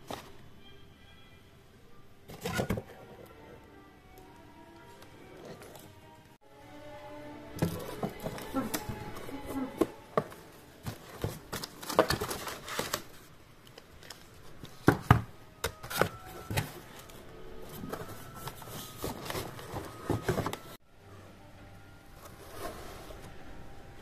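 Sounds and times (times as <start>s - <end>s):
cardboard rustling and scraping: 7.6s - 13.3s, 14.0s - 20.8s, 22.2s - 23.4s.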